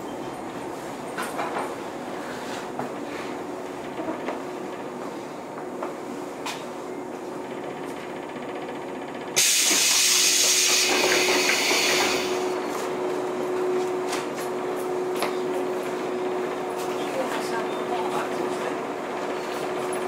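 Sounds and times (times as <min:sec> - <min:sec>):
compressed air hiss: 0:09.4 - 0:12.5.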